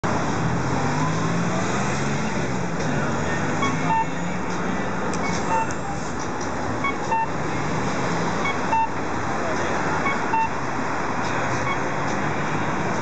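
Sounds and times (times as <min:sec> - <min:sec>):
street traffic: 0:00.0 - 0:13.0
short high beeps: 0:03.6 - 0:04.3, 0:05.5 - 0:05.8, 0:06.8 - 0:07.3, 0:08.4 - 0:09.0, 0:10.0 - 0:10.6.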